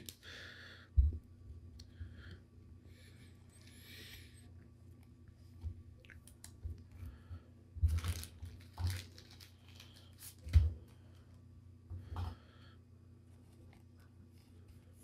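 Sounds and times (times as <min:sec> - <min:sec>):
plastic sleeve crinkling: 0:07.8 - 0:10.6.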